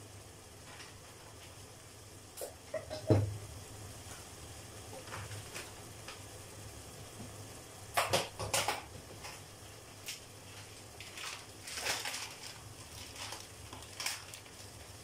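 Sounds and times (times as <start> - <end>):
low steady hum: 0.0 - 15.0
kitchen items clicking and knocking: 8.0 - 9.4.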